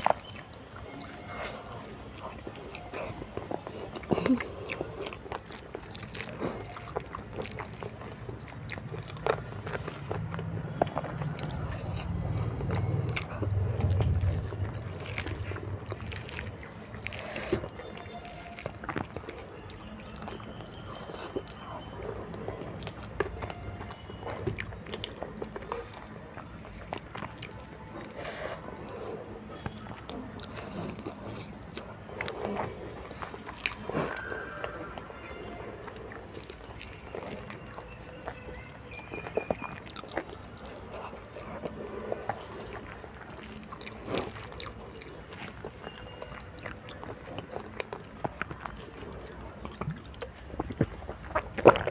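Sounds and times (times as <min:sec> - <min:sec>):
person chewing noodles: 0:00.0 - 0:51.9
low rumble: 0:09.6 - 0:17.2.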